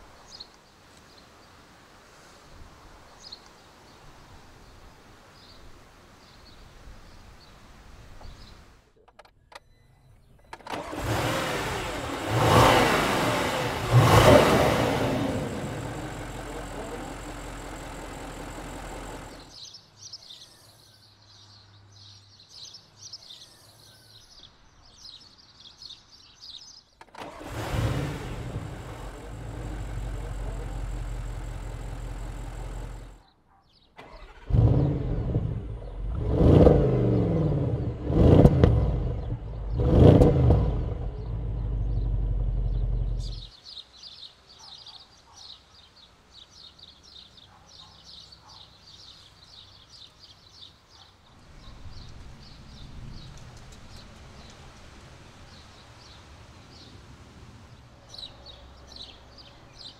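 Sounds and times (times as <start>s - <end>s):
car engine starting and revving: 10.6s - 19.6s, 27.1s - 33.2s, 34.0s - 43.5s
car engine idling: 10.8s - 19.5s, 27.2s - 33.2s, 34.3s - 43.5s.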